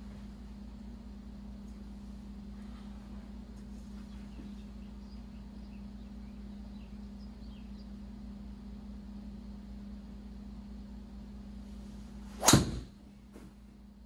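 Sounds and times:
low room hum: 0.0 - 14.0
golf club swish: 11.8 - 13.5
club striking ball crack: 12.4 - 13.5.

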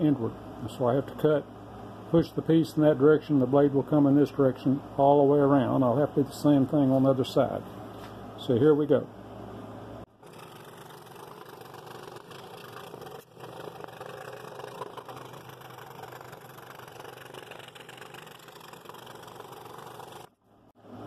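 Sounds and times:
scroll saw cutting wood: 10.2 - 20.3.

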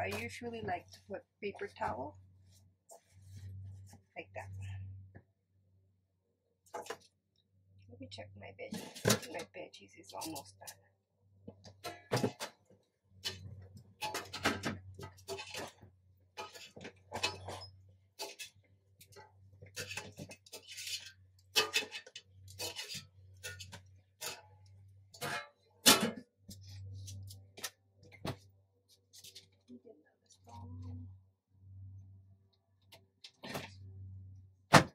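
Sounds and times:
pan and utensils clicking: 16.4 - 24.4
faint low hum: 28.6 - 34.6.

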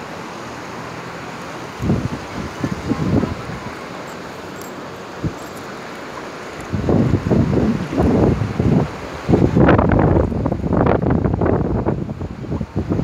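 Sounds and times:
surf: 0.0 - 13.0
wind buffeting microphone: 1.7 - 4.1, 6.5 - 13.0.

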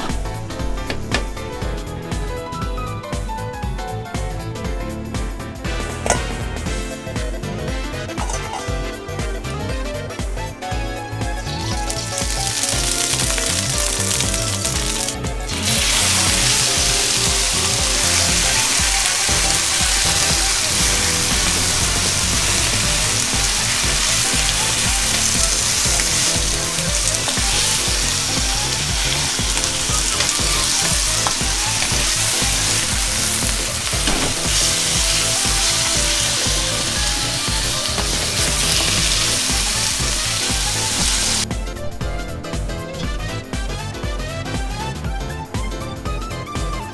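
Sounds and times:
meat sizzling in oil: 11.4 - 41.4.

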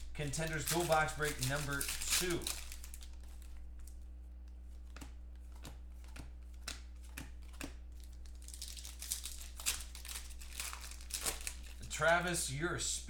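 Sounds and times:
trading cards ticking: 0.0 - 3.4
foil pack crinkling and tearing: 0.0 - 4.1, 7.5 - 12.4
steady low hum: 0.0 - 13.0.

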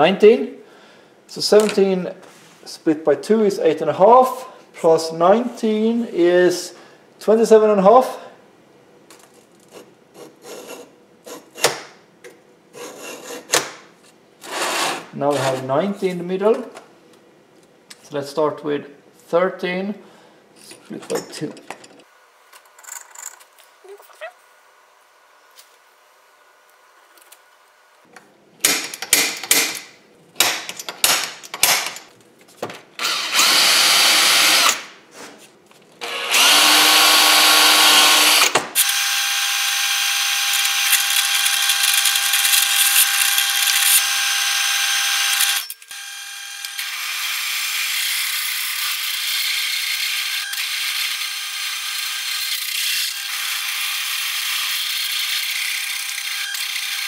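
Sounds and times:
drill press whining: 33.0 - 34.8, 36.0 - 46.9.

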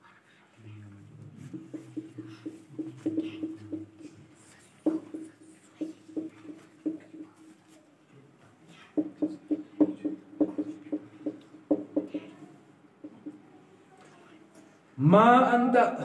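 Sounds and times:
marker writing on a whiteboard: 1.4 - 7.9, 8.7 - 13.5.

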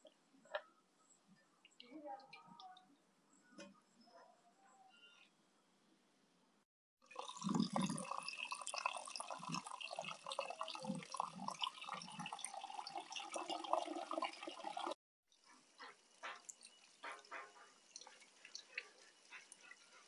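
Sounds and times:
water running and splashing: 7.1 - 20.0.

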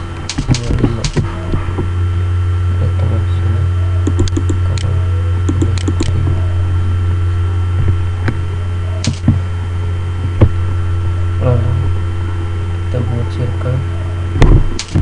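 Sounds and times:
faint high whine: 0.0 - 15.0
low electrical hum: 0.0 - 15.0
mouse and keyboard clicks: 4.1 - 4.9, 5.5 - 6.2, 14.8 - 15.0.

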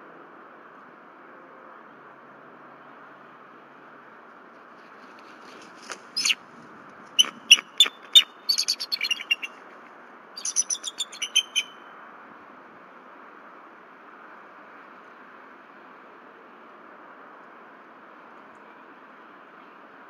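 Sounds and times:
eagles chirping and chittering: 6.1 - 6.4, 7.2 - 9.6, 10.4 - 11.7.

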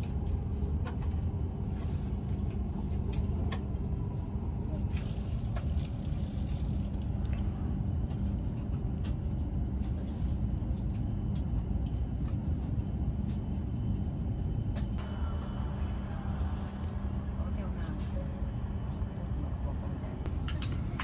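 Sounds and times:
train rumble: 0.0 - 21.0
faint high whine: 10.8 - 20.9.

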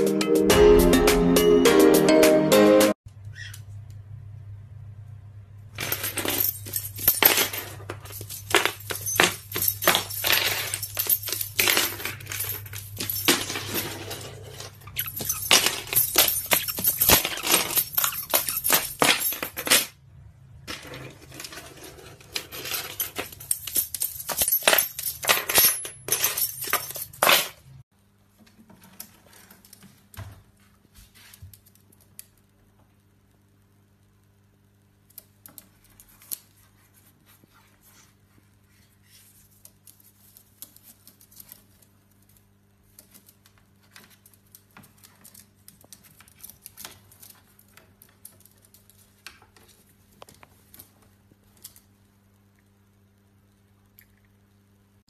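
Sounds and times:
metal object scraping on tiled floor: 13.4 - 18.5, 20.7 - 23.2.

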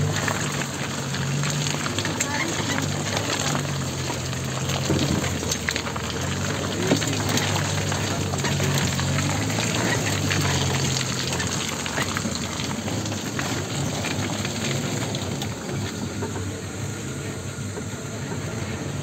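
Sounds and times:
off-road vehicle engine running: 0.0 - 19.0
tyres rushing through mud: 0.0 - 19.0.

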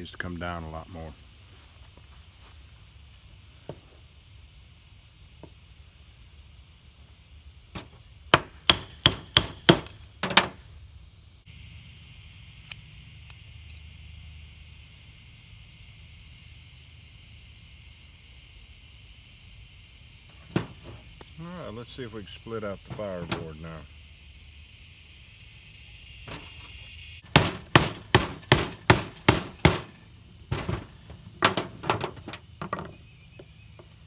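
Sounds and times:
insect chorus buzzing: 0.0 - 34.0
knife chopping wood: 7.8 - 10.5, 27.3 - 32.2.

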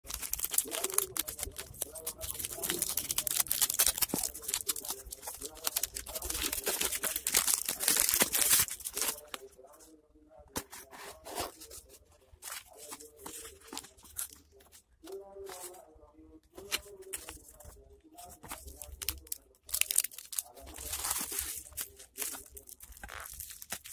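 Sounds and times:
plastic bag crinkling and tearing: 0.0 - 9.4, 18.6 - 23.9.

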